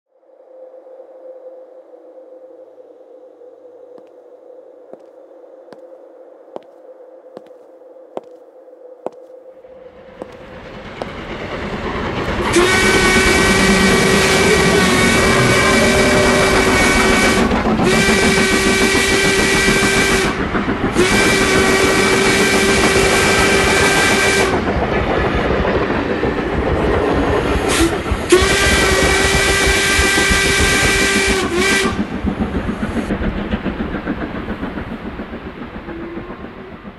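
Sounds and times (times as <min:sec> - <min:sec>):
steam train rumble: 0:09.6 - 0:36.9
steam train whistle blasts: 0:12.4 - 0:20.4, 0:21.0 - 0:24.6, 0:27.7 - 0:32.0.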